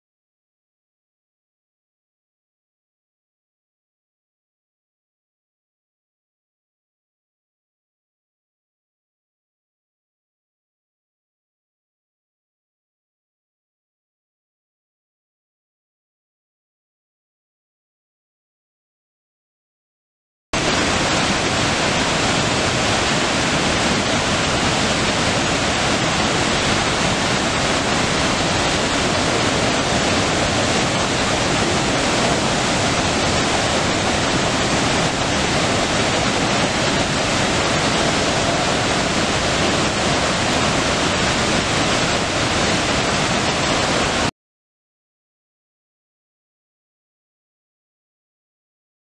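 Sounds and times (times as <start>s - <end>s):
waterfall rushing: 20.6s - 44.3s.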